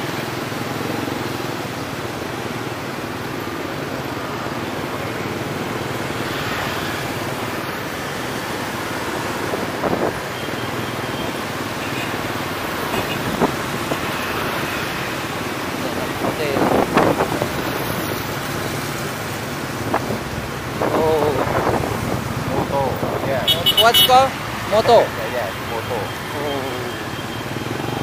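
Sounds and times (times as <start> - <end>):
street traffic: 0.0 - 28.0
wind on microphone: 15.8 - 18.7, 19.5 - 23.4.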